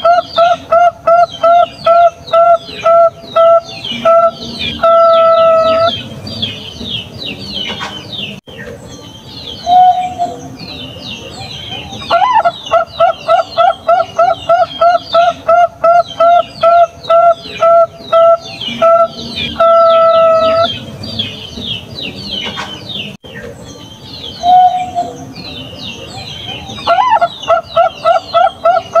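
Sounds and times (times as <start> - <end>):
dove cooing: 0.0 - 6.1, 11.6 - 21.3, 24.4 - 25.3, 26.0 - 29.0
small birds twittering: 0.0 - 29.0.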